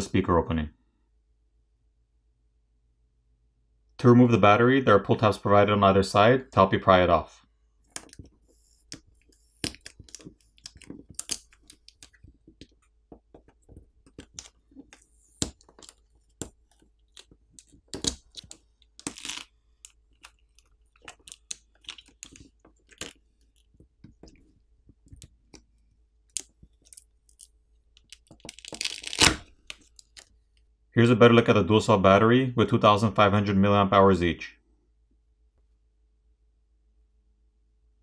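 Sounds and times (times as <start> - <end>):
adhesive crackling as it peels: 9.6 - 12.8, 13.4 - 24.4, 26.3 - 30.3.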